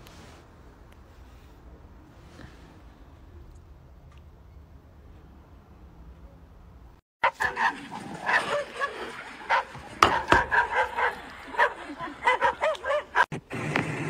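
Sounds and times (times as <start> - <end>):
dogs barking: 7.2 - 13.3.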